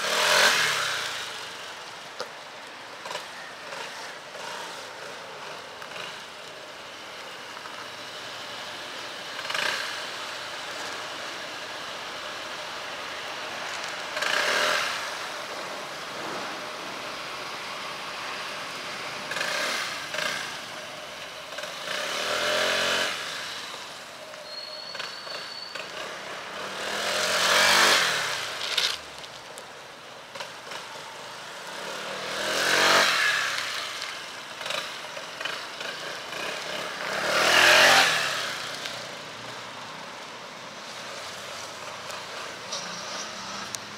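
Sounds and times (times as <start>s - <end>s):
scooter engine passing by: 24.9s - 28.9s, 30.3s - 39.6s.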